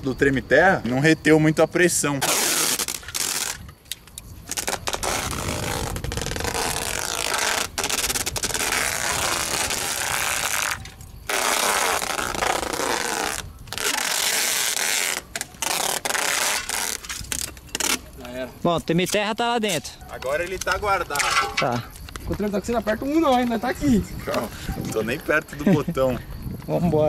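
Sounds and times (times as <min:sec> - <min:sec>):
packing tape pulled off roll: 0:02.2 - 0:18.1.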